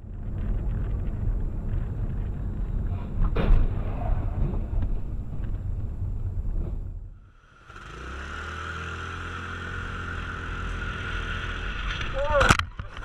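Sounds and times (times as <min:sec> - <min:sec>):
road and engine rumble: 0:00.0 - 0:13.0
sharp thump: 0:03.2 - 0:04.8.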